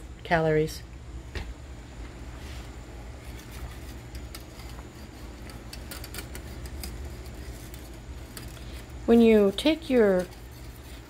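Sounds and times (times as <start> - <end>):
whisk scraping metal pan: 3.2 - 11.0.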